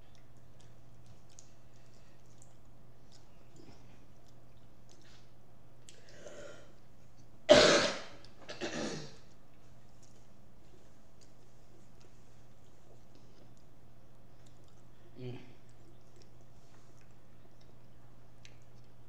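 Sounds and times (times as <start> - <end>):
person coughing: 7.5 - 9.2.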